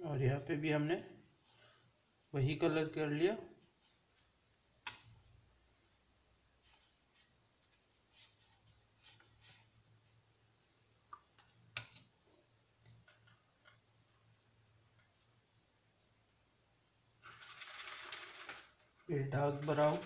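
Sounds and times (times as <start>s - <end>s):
soft rustles: 5.6s - 10.9s.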